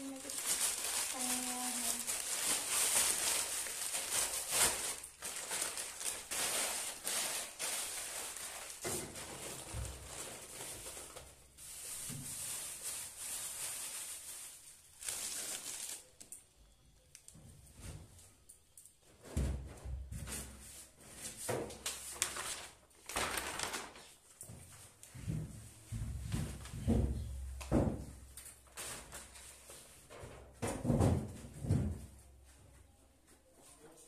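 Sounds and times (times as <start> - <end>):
plastic bags crinkling: 0.0 - 16.4, 21.8 - 24.2.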